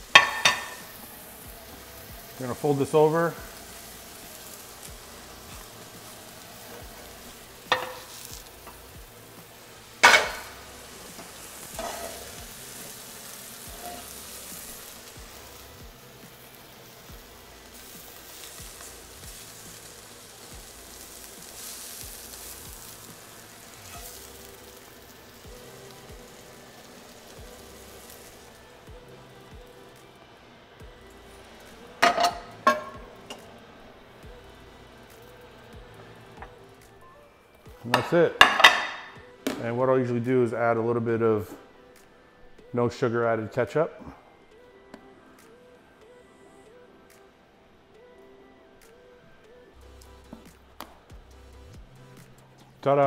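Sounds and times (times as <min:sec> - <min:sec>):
eggs sizzling in a frying pan: 0:00.0 - 0:40.4, 0:48.8 - 0:53.0
knocks on the pan: 0:37.9 - 0:39.6.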